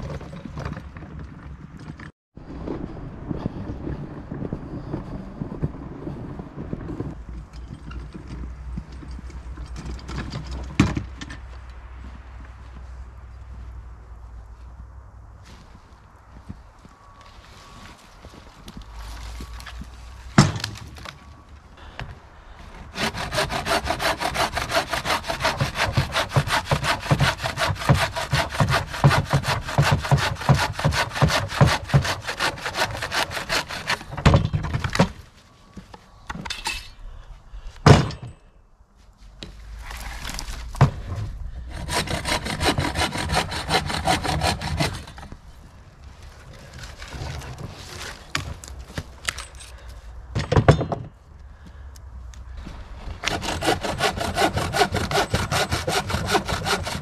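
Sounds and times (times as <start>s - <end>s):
rapid scraping strokes: 39.5s - 45.3s.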